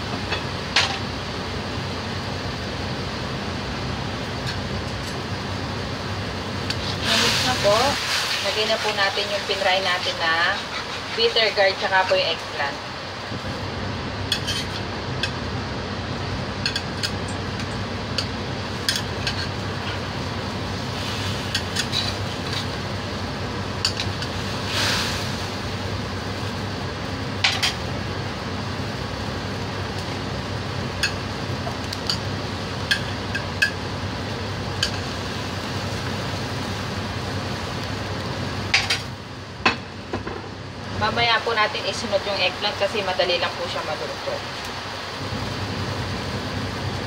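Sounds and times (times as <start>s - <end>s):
metal ladle scraping wok: 10.4s - 11.5s, 14.3s - 14.8s.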